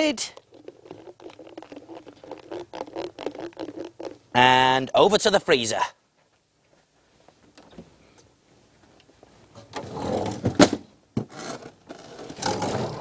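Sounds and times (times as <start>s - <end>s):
plastic drawer sliding: 11.3s - 13.0s.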